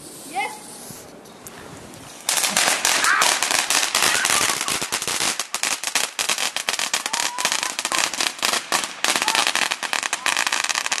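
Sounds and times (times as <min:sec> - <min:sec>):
fireworks crackling: 0:02.1 - 0:11.0.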